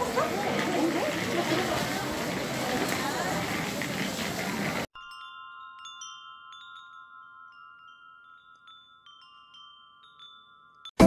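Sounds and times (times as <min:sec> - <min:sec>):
wind chime tinkling: 0:05.0 - 0:11.0.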